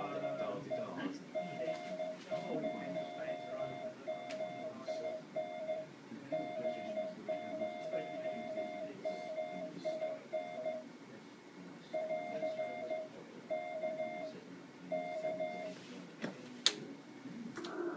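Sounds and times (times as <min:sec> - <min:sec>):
morse code tone: 0:00.0 - 0:10.8, 0:12.0 - 0:14.3, 0:14.9 - 0:15.8.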